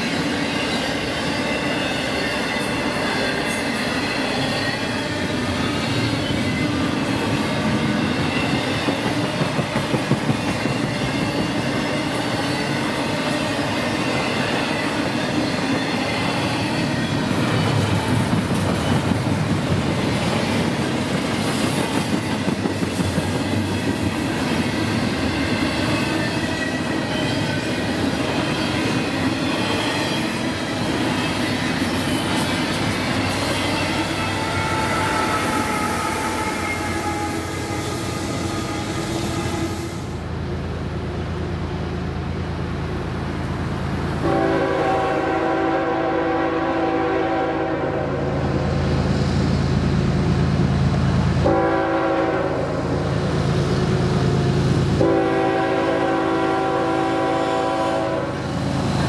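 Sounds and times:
train wheels clacking over rails: 0:00.0 - 0:40.0.

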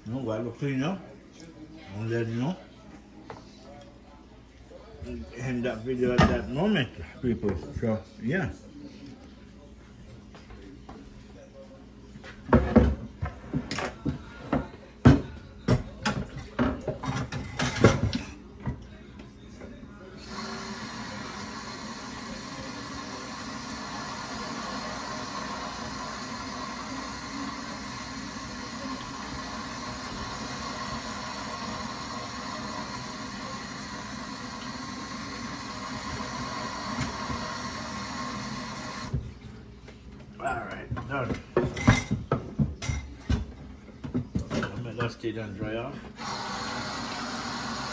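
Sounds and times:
kitchenware knocking and clattering: 0:06.0 - 0:06.5, 0:12.4 - 0:18.8, 0:40.7 - 0:45.8
kitchen tap running into sink: 0:20.2 - 0:39.2.

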